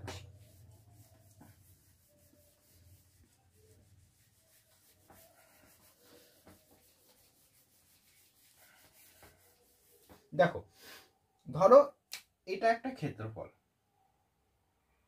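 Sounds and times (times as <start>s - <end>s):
whiteboard being wiped: 0.0s - 11.0s.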